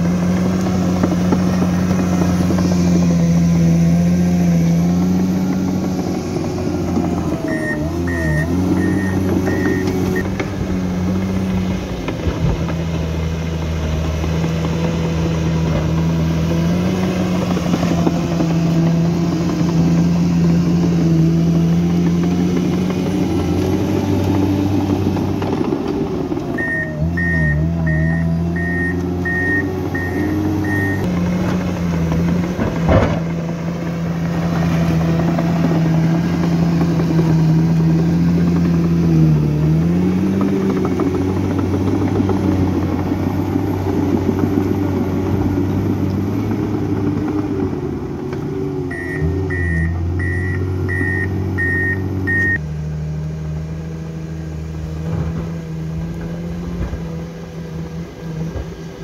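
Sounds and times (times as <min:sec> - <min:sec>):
bulldozer diesel engine under load: 0:00.0 - 0:59.0
warning alarm beeps: 0:07.4 - 0:10.3, 0:26.6 - 0:31.1, 0:48.9 - 0:52.6.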